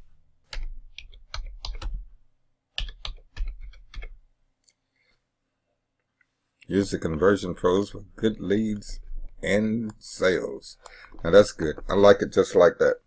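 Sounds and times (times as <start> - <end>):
computer keyboard typing: 0.5 - 2.1, 2.8 - 4.2.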